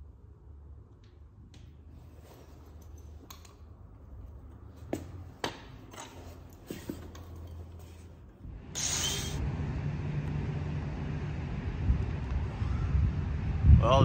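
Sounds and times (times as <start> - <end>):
low steady hum: 7.2 - 14.0.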